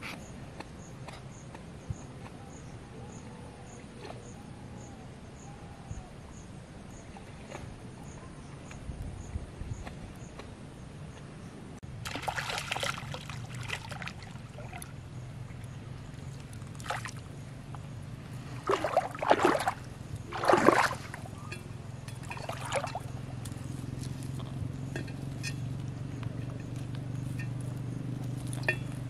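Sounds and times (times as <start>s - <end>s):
steady low hum: 0.0s - 29.0s
water splashing and sloshing: 11.8s - 25.6s.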